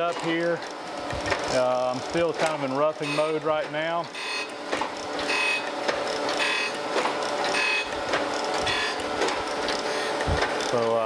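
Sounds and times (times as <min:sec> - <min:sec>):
grinder motor and wheel whine: 0:00.0 - 0:11.0
grinding bursts on metal castings: 0:00.0 - 0:11.0.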